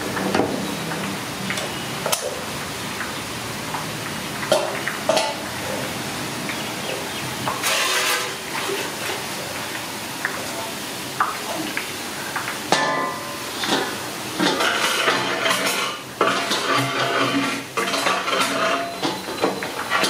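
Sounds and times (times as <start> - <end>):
oil sizzling and bubbling: 0.0 - 20.0.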